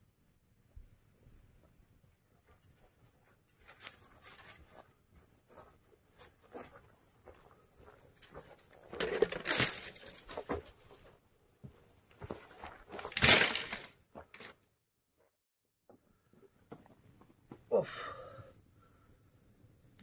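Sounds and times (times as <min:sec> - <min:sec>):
dry branches rustling and crackling: 0:08.2 - 0:10.9, 0:12.9 - 0:14.5
twigs scraping: 0:08.9 - 0:10.8, 0:12.9 - 0:14.6.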